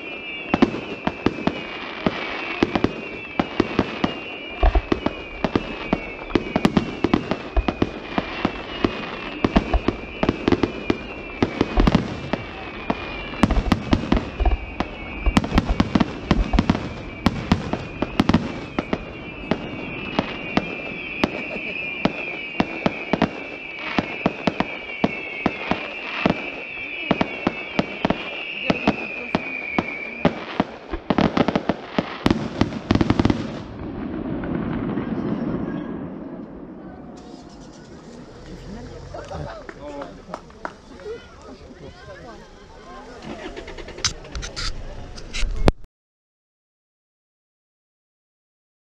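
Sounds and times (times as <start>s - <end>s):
fireworks bursting and crackling: 0.0s - 45.9s.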